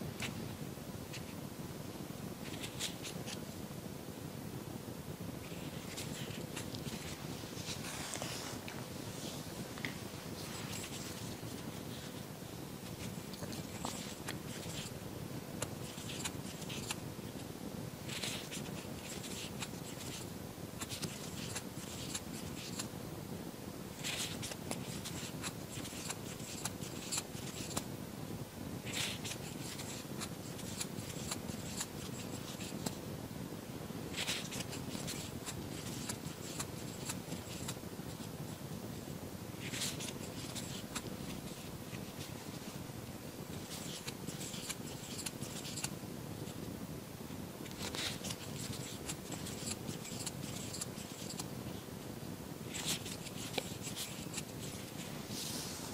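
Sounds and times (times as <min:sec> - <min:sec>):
faint hum: 0:00.0 - 0:55.9
room hiss: 0:00.0 - 0:55.9
yarn rustling with crochet hook: 0:02.4 - 0:03.4, 0:05.4 - 0:15.0, 0:15.6 - 0:22.9, 0:23.9 - 0:27.9, 0:28.8 - 0:33.0, 0:34.1 - 0:38.6, 0:39.6 - 0:42.8, 0:43.5 - 0:46.6, 0:47.6 - 0:51.8, 0:52.6 - 0:55.9.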